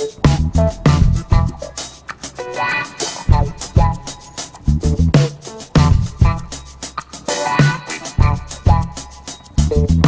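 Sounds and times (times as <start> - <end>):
music with drum beat and bass: 0.0 - 10.0.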